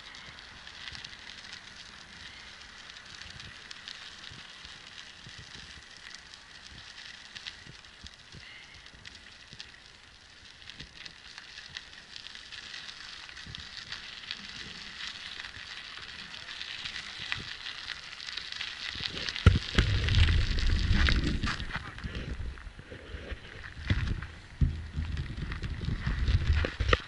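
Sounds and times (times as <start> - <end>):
footsteps crunching on gravel: 10.8 - 27.0
low rumble: 19.0 - 27.0.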